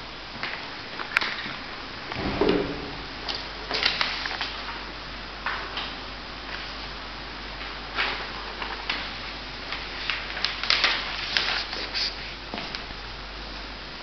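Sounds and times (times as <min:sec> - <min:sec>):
machinery humming: 0:00.0 - 0:05.4.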